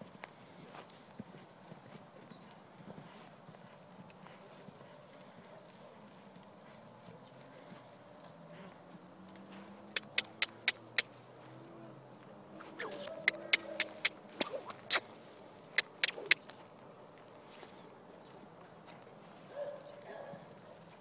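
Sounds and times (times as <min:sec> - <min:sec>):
hoofbeats on dirt: 0:00.0 - 0:21.0
faint insect buzz: 0:08.7 - 0:16.5.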